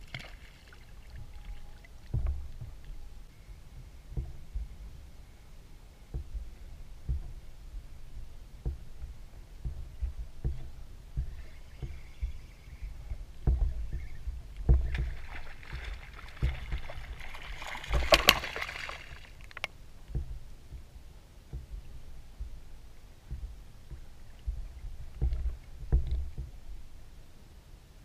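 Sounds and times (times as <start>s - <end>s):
water splashing: 0.0s - 27.3s
waves slapping against boat hull: 0.0s - 27.4s.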